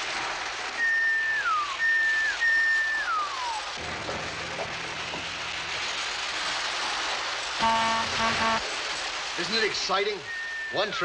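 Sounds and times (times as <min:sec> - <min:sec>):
model trains running on track: 0:00.0 - 0:11.0
low hum: 0:00.1 - 0:09.4
toy train whistle: 0:00.8 - 0:03.8, 0:07.6 - 0:08.7, 0:10.2 - 0:11.0.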